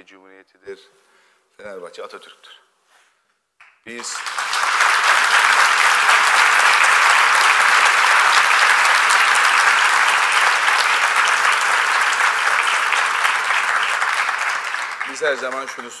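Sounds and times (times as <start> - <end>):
large audience applauding: 3.9 - 16.0.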